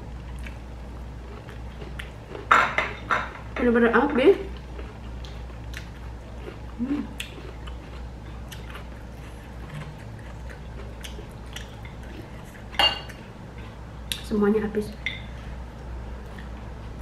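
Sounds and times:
chewing with wet mouth clicks: 0.3 - 0.6, 1.2 - 2.5, 4.5 - 14.3.

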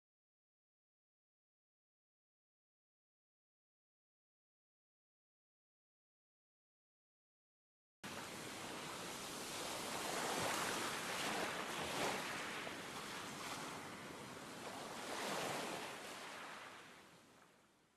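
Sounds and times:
small waves washing onto beach: 8.0 - 17.7.

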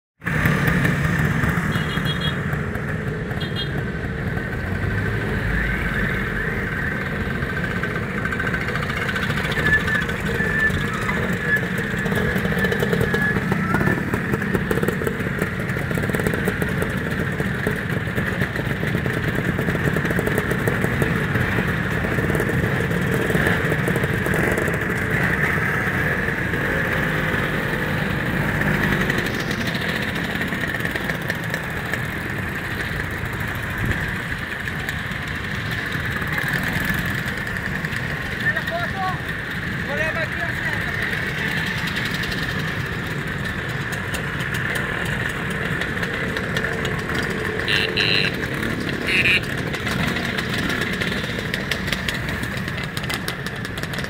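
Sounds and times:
scooter engines pulling away: 0.2 - 54.0.

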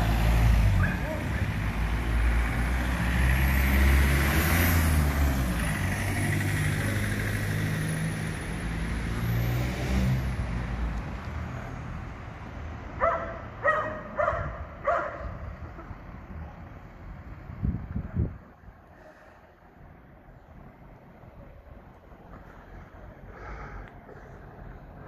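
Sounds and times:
cars driving past: 0.0 - 25.0
dog barking: 13.0 - 15.4.

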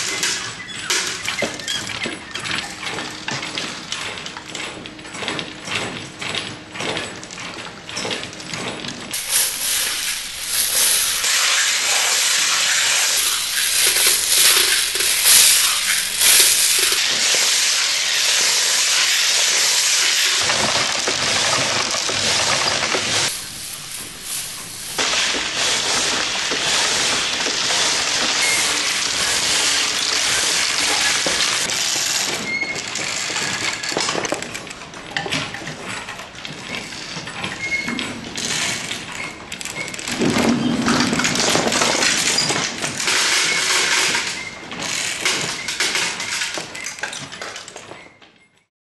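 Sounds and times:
steel balls clicking on wood: 9.1 - 34.6
loud steady hissing rush: 9.2 - 20.5, 23.2 - 26.9.

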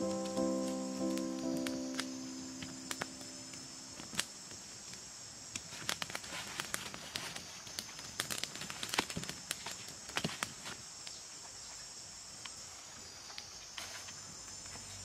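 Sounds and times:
music: 0.0 - 4.2
high insect drone: 0.0 - 9.9
campfire crackling: 0.0 - 10.7
leaves and sticks rustling: 0.0 - 11.8.

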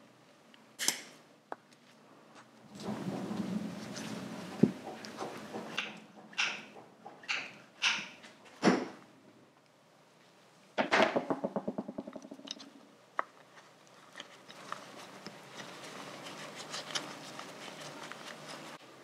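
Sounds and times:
rustling: 1.8 - 6.4, 11.5 - 19.0.

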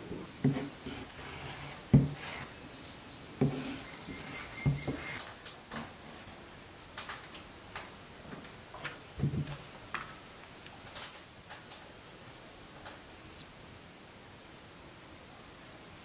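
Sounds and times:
knife knocking on wooden plate: 3.4 - 5.2.

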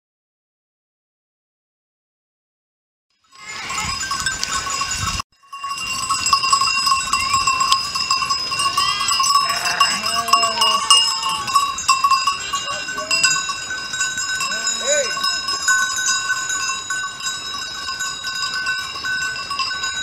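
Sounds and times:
livestock bells clanging: 3.2 - 20.0
sheep or goats bleating: 8.6 - 11.8.

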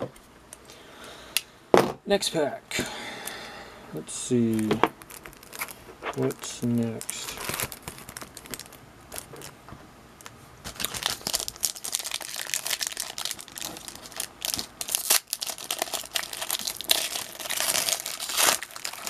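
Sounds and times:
plastic wrapper tearing and crinkling: 4.4 - 9.6, 10.6 - 19.0.

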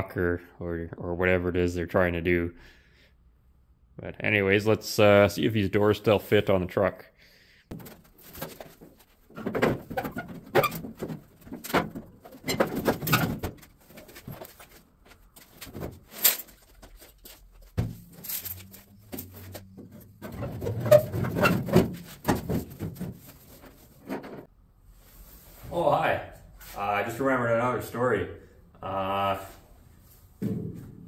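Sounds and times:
metal door clunks and knocks: 9.3 - 13.7, 19.8 - 23.2.

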